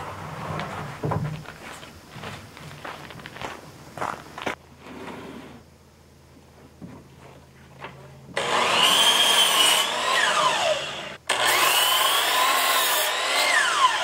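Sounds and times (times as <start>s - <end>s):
miter saw cutting wood: 8.4s - 14.0s
saw blade spinning down: 8.4s - 14.0s.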